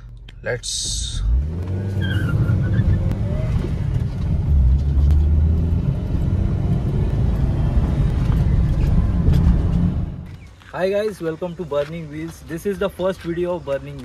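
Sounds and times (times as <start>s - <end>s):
road noise: 0.0s - 14.0s
car engine accelerating: 0.2s - 10.4s.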